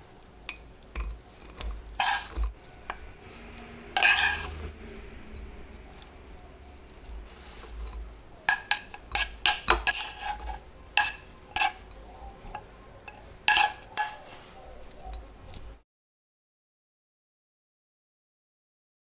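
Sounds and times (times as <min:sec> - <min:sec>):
utensil clinking against pan: 0:08.4 - 0:11.8, 0:12.5 - 0:14.3.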